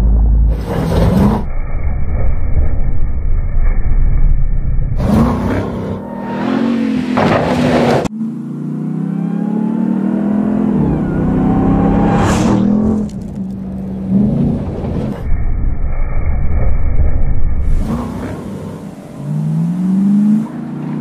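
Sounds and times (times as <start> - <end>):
truck engine revving hard: 0.5 - 1.5, 5.0 - 15.2, 17.7 - 21.0
loud rushing swells: 10.7 - 17.9.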